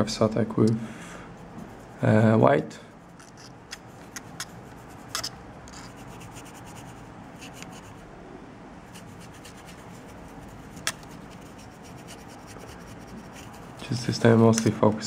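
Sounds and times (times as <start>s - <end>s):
paintbrush scrubbing plastic: 1.4s - 2.2s, 3.0s - 8.0s, 8.9s - 14.2s.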